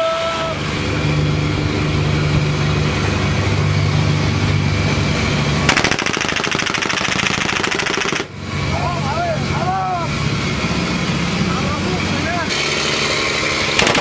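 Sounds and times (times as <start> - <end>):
boat engine droning: 0.0 - 14.0
machine-gun fire burst: 5.7 - 8.3, 13.8 - 14.0.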